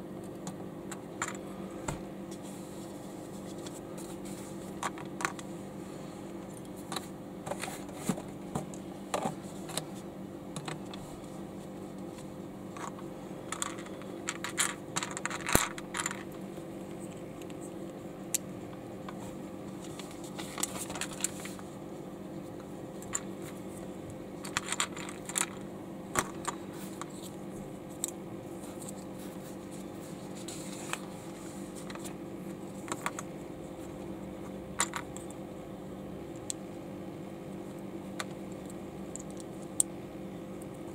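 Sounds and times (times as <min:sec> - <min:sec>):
plastic bricks clicking and clattering: 0:12.8 - 0:16.3, 0:24.4 - 0:26.6.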